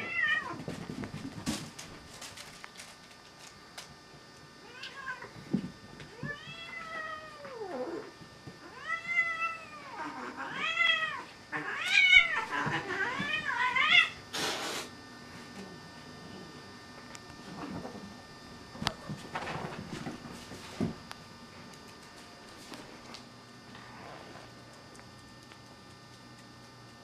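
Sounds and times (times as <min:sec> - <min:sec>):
cat hissing: 0:14.0 - 0:15.0.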